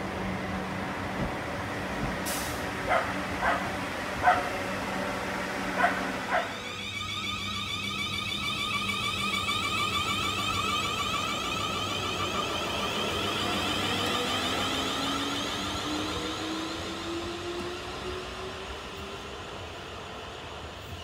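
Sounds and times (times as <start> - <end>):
electric train rumbling: 0.0 - 21.0
dog barking: 2.9 - 4.5, 5.8 - 6.5.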